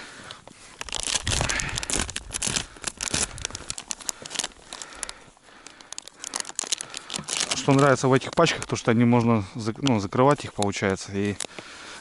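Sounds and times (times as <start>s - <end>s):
plastic packet crinkling: 0.7s - 9.1s.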